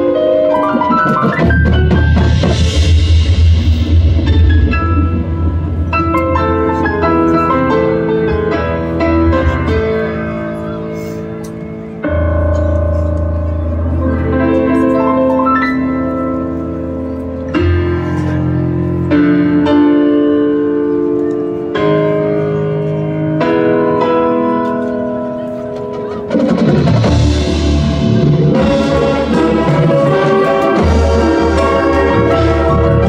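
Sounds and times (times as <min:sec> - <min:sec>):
marching band playing: 0:00.4 - 0:10.0, 0:25.9 - 0:33.0.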